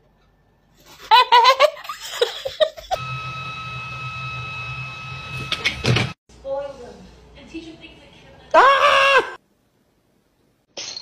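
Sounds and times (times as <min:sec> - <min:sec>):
person giggling: 0:01.0 - 0:03.0.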